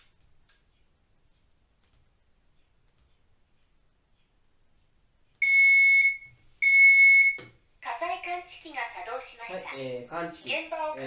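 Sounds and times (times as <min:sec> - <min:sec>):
high electronic alarm tone: 0:05.4 - 0:07.4.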